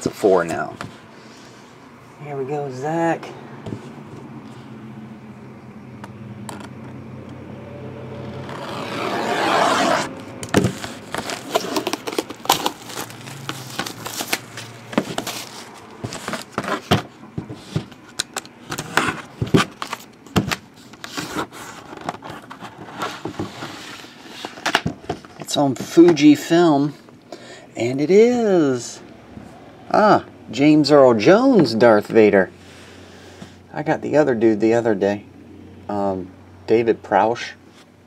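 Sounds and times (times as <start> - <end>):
plastic wrap ripping: 8.2 - 15.6
knife cutting shrink wrap: 8.3 - 15.5
plastic crinkling: 10.4 - 16.9.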